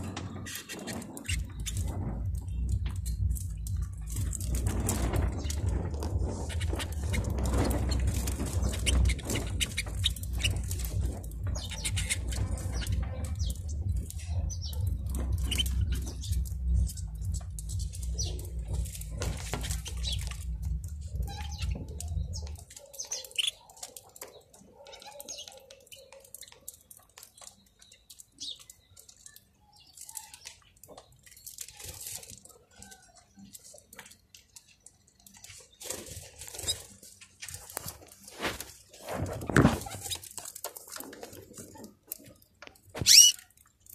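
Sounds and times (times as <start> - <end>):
wing flutter: 0.0 - 26.6, 31.3 - 43.6
finches chirping: 0.0 - 31.2, 43.0 - 43.5
steady low hum: 1.4 - 22.6.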